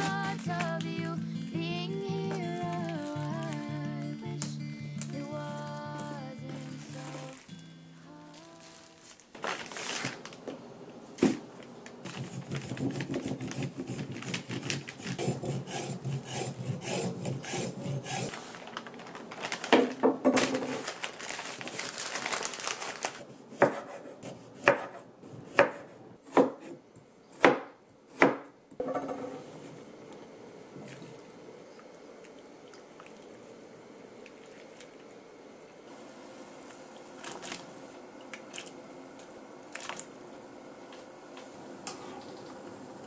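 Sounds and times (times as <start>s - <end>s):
knife cutting on wooden board: 12.1s - 18.3s
root being scraped rasping: 12.2s - 18.4s.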